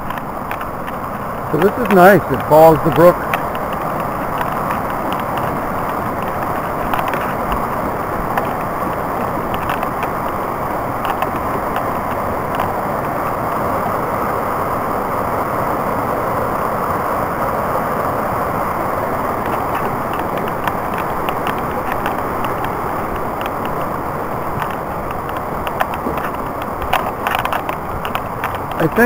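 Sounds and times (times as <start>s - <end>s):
brook rushing over rocks: 0.0s - 29.0s
light clicks: 11.0s - 12.8s, 19.4s - 29.0s.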